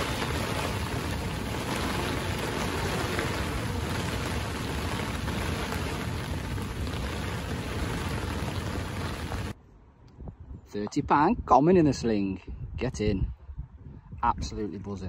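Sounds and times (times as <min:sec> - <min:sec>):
heavy rain on a lake: 0:00.0 - 0:09.6
wind rumbling on microphone: 0:00.0 - 0:15.0.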